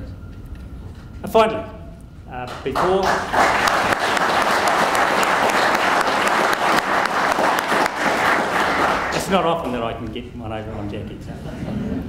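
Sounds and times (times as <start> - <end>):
audience applauding: 2.5 - 9.9.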